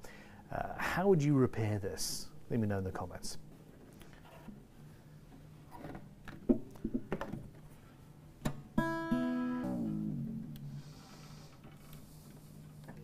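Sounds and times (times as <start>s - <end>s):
guitar chord strummed: 8.8s - 11.0s.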